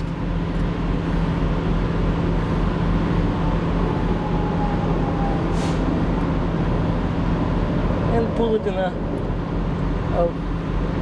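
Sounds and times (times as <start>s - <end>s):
truck engine idling: 0.0s - 11.0s
brief hiss: 5.5s - 5.9s.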